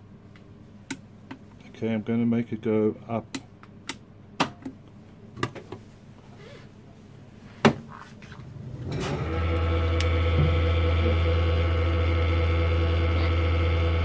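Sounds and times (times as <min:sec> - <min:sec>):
lift motor humming and whining: 0:08.4 - 0:14.0.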